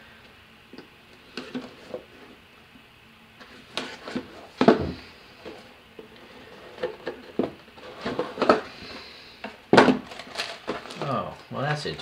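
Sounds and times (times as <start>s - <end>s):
cardboard knocking and scraping: 3.7s - 5.6s.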